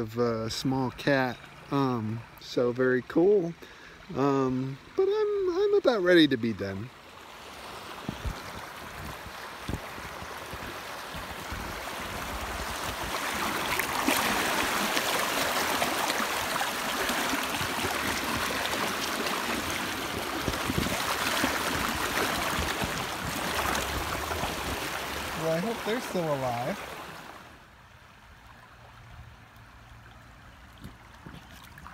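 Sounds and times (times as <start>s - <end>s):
river water rushing over rocks: 7.0s - 27.6s.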